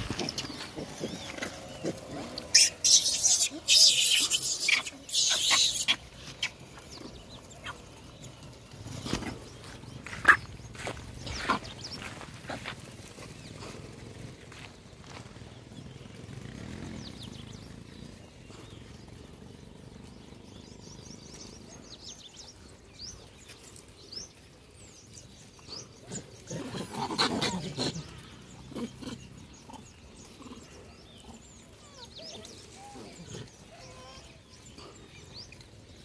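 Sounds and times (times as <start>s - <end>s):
monkey calls: 0.0s - 6.8s.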